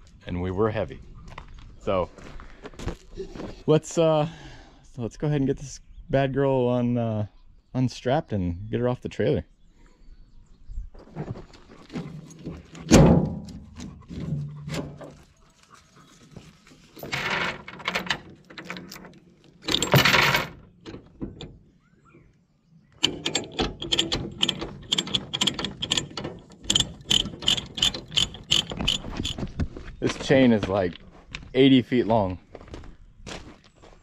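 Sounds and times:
rattling noises: 0:11.0 - 0:21.8, 0:23.0 - 0:31.6
ratchet binder clicking: 0:23.0 - 0:29.4.

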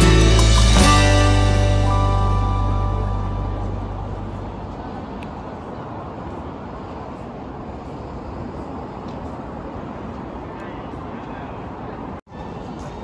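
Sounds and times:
background music: 0:00.0 - 0:04.6
low ambient rumble: 0:00.0 - 0:07.2.

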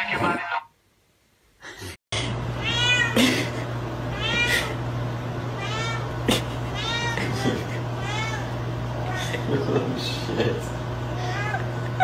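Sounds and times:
steady low hum: 0:00.1 - 0:12.0
cat meowing: 0:02.6 - 0:03.2, 0:04.1 - 0:04.8, 0:05.6 - 0:06.2, 0:06.8 - 0:07.4, 0:08.0 - 0:09.3, 0:11.2 - 0:11.7.

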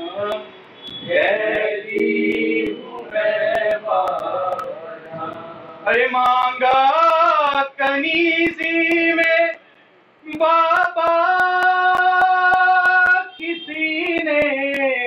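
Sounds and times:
rhythmic chest beating: 0:01.1 - 0:09.4
high voice singing a lament: 0:01.1 - 0:09.6, 0:10.3 - 0:15.0.

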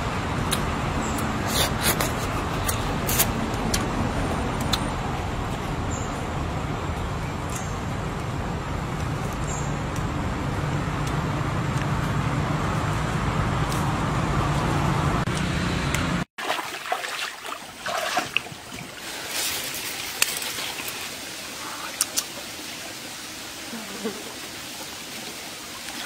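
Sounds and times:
forest stream: 0:13.7 - 0:26.0
plants rustling and clicking: 0:19.1 - 0:21.1.

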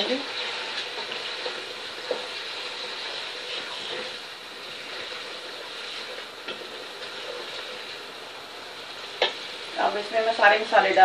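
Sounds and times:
wooden spoon stirring: 0:00.0 - 0:08.2
chicken sizzling in hot oil: 0:00.0 - 0:11.0.

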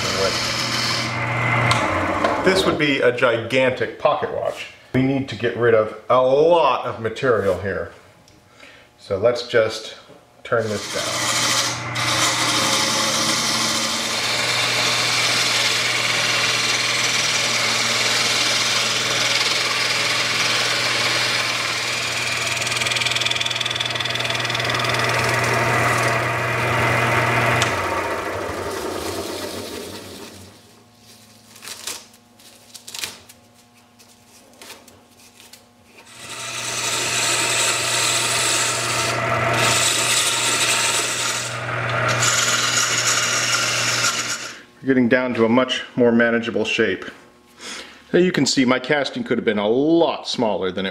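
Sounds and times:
lathe motor hum: 0:00.0 - 0:02.8, 0:10.8 - 0:30.6, 0:36.1 - 0:44.7
lathe tool scraping wood: 0:00.0 - 0:02.8, 0:10.5 - 0:30.6, 0:36.0 - 0:44.7.

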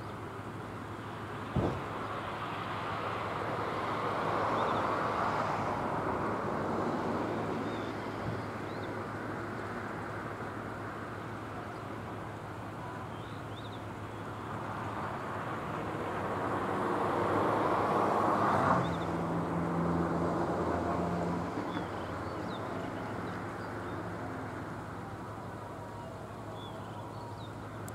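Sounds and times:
motor vehicle passing: 0:14.9 - 0:24.5.

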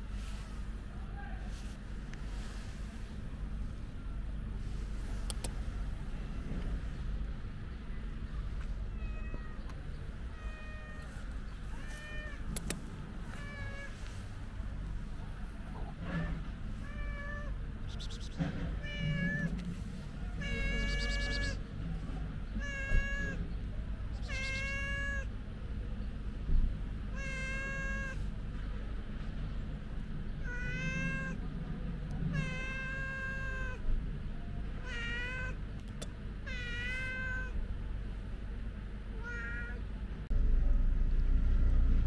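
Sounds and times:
cat meowing: 0:09.0 - 0:09.7, 0:10.3 - 0:12.7, 0:13.3 - 0:14.0, 0:15.8 - 0:17.6, 0:18.8 - 0:19.6, 0:20.3 - 0:21.6, 0:22.6 - 0:23.4, 0:24.2 - 0:25.3, 0:27.1 - 0:28.2, 0:30.4 - 0:31.4, 0:32.3 - 0:33.8, 0:34.8 - 0:35.6, 0:36.4 - 0:37.6, 0:39.2 - 0:39.8.

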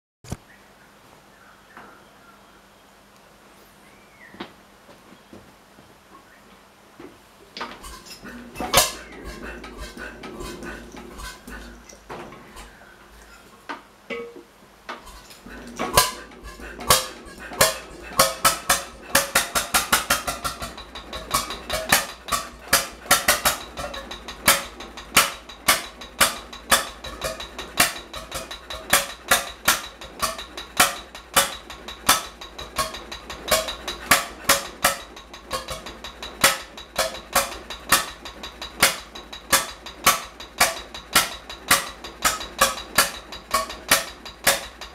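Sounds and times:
stationary engine running: 0:07.8 - 0:12.8, 0:15.1 - 0:44.9.

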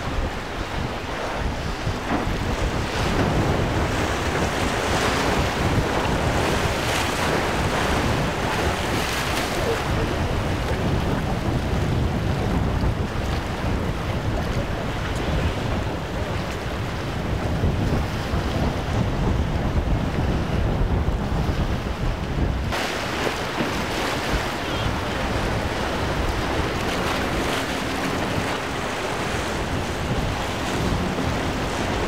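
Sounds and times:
waves breaking: 0:00.0 - 0:32.0
wind on the microphone: 0:00.0 - 0:32.0
outboard motor running: 0:23.0 - 0:32.0.

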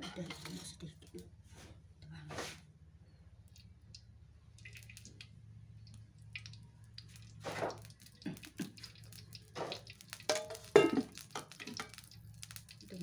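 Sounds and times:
low steady hum: 0:00.0 - 0:13.0
oil dripping into wok: 0:03.4 - 0:13.0
metal strainer clattering: 0:10.3 - 0:12.0.

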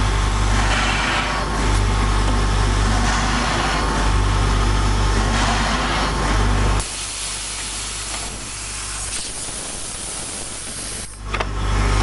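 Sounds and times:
drilling machine hiss: 0:06.8 - 0:11.2.

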